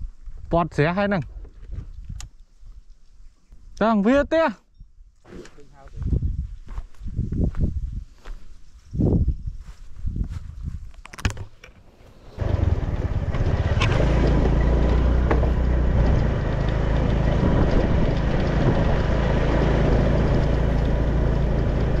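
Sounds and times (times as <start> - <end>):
motor humming: 12.1 - 22.0.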